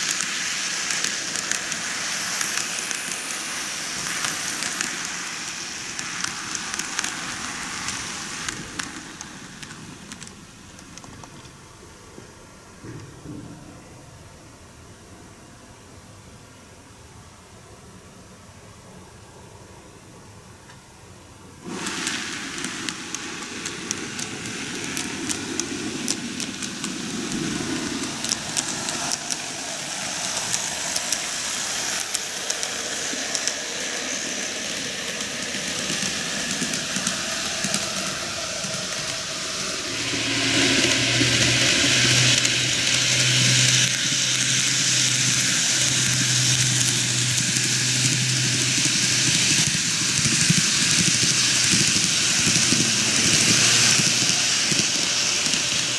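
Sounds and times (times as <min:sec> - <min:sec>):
model train wheels rattling: 0:00.0 - 0:11.8, 0:21.6 - 0:55.9
low hum: 0:22.8 - 0:55.1.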